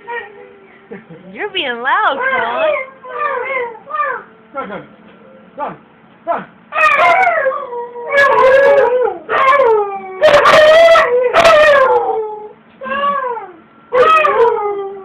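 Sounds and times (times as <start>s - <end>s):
husky howling: 2.2s - 4.3s, 6.7s - 15.0s.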